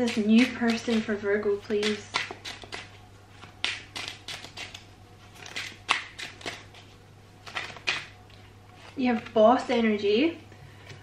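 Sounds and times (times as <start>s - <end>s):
playing cards shuffling: 1.7s - 9.4s.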